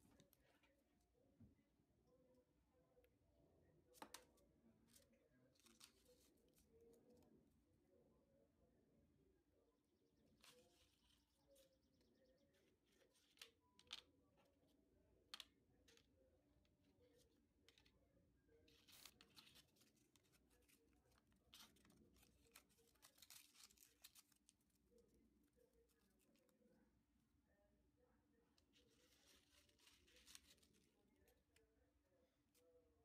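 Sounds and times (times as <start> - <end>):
paper rustling and crinkling: 4.0 - 7.2, 18.6 - 26.6, 28.6 - 31.6.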